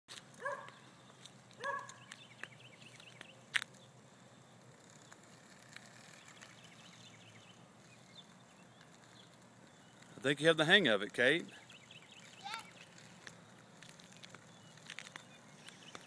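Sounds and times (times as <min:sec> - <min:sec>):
bird chirps: 0:00.5 - 0:03.9, 0:05.9 - 0:10.4, 0:11.4 - 0:16.0.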